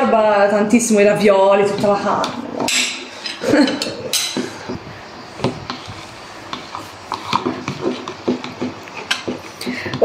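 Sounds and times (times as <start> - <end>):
spoon stirring in plastic jug: 5.4 - 10.0.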